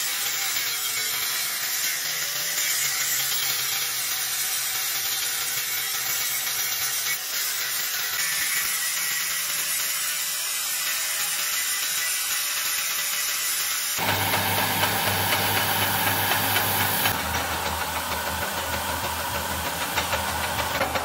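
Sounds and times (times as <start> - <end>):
grinder disc hissing on steel: 0.0 - 21.0
grinder motor hum: 14.0 - 21.0.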